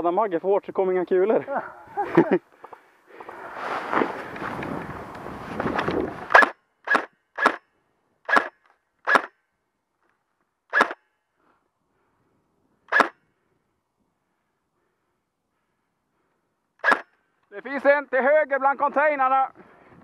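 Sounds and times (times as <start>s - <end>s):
rustle of movement: 1.4s - 6.4s
airsoft gun shots: 6.3s - 7.6s, 8.2s - 9.4s, 10.7s - 11.0s, 12.9s - 13.2s, 16.8s - 17.1s.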